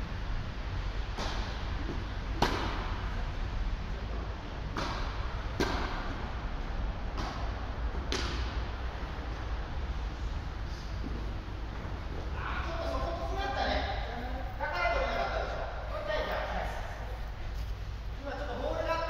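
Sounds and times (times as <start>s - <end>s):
tennis balls struck with rackets: 1.1s - 3.1s, 4.6s - 9.5s.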